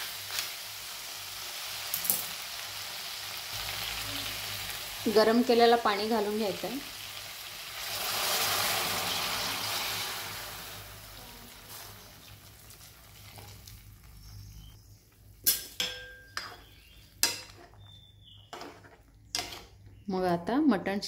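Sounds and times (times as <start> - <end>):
water sizzling in hot pot: 0.0 - 14.3
metal ladle clinking on pot: 15.5 - 17.8.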